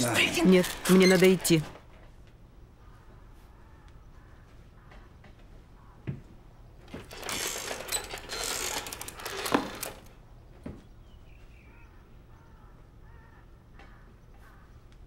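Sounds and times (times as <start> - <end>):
objects clattering on wooden desk: 6.8 - 10.1.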